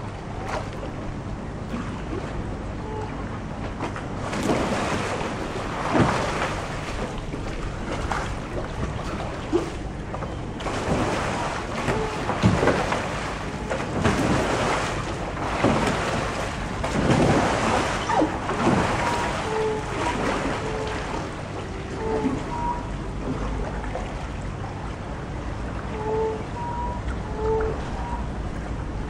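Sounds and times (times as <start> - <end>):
river water lapping: 0.0 - 29.0
kayak paddle splashing: 3.8 - 24.8.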